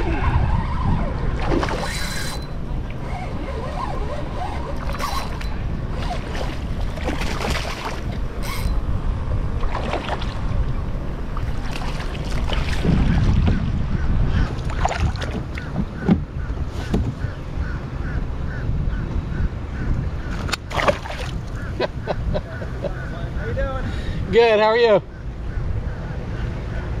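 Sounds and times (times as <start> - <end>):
wind buffeting microphone: 0.0 - 27.0
fish splashing in water: 6.0 - 8.5, 9.6 - 10.6, 11.4 - 13.5, 20.6 - 21.4.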